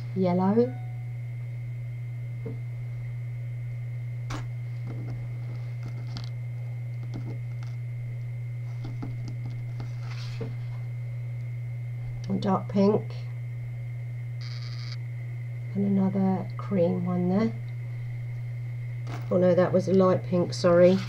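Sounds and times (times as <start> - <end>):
steady low hum: 0.0 - 21.0
faint high steady tone: 0.2 - 1.4, 12.3 - 20.9.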